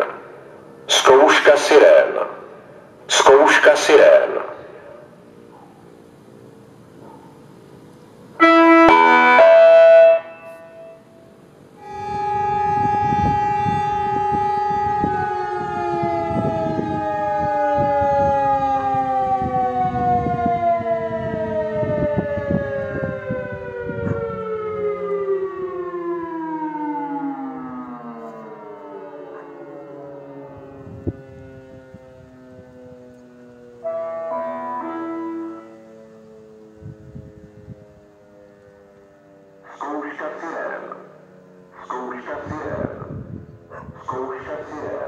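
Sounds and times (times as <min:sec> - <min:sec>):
electronic siren chime: 0:08.4 - 0:39.3
siren winding down: 0:08.4 - 0:43.8.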